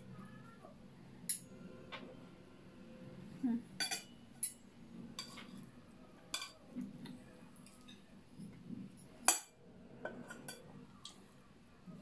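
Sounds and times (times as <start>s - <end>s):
cutlery clinking on plates: 3.8s - 5.6s, 6.3s - 6.6s, 9.2s - 10.7s.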